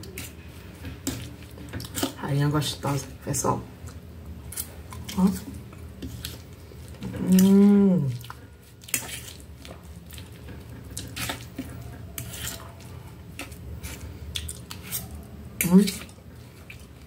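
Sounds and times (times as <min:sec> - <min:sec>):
chewing: 0:04.6 - 0:17.0.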